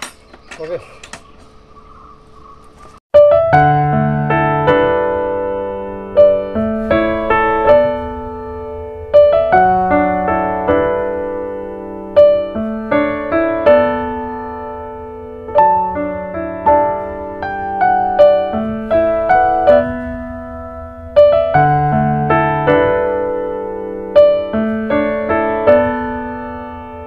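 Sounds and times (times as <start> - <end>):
gentle piano music: 3.1 - 27.0.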